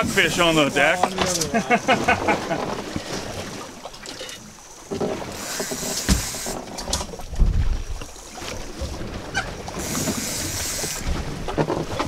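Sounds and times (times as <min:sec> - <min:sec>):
waves against a boat: 0:00.0 - 0:12.0
wind buffeting microphone: 0:07.1 - 0:08.1.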